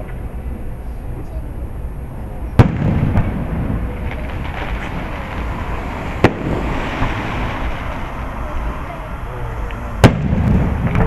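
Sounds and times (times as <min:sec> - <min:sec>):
firework rumble and crackle: 0:00.0 - 0:11.0
firework bangs: 0:02.5 - 0:11.0.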